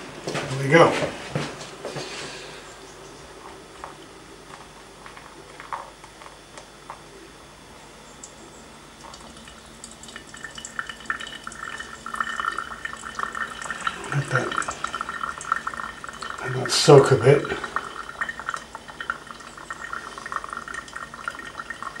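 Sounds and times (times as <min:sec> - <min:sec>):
water trickling onto coffee: 0:09.0 - 0:22.0.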